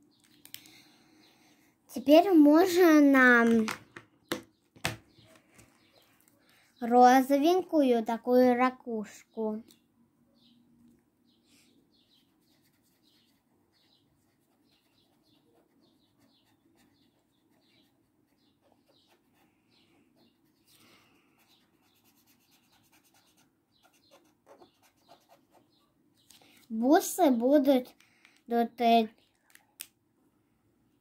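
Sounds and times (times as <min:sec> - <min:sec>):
marker scratching on paper: 0:12.1 - 0:25.8.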